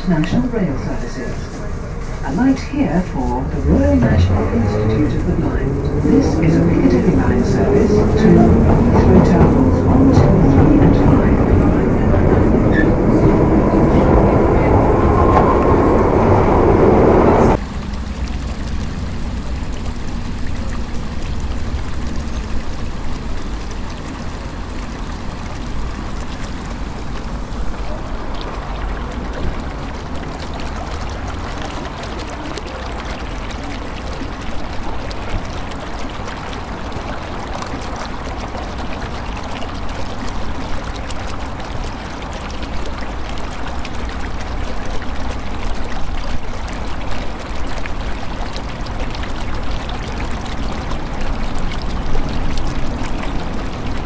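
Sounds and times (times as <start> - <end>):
underground train running: 0.0 - 29.9
rushing noise with low rumble: 0.0 - 54.0.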